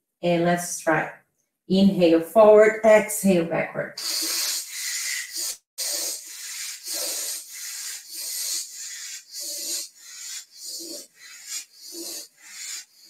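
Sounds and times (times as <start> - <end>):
rapid breathing through nose: 4.0 - 13.0.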